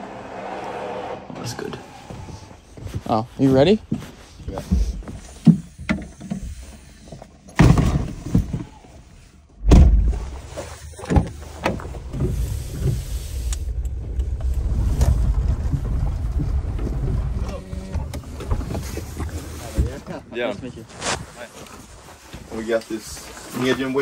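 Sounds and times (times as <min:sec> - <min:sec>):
car engine rumbling: 0:00.0 - 0:20.0
car door slamming: 0:09.6 - 0:10.3.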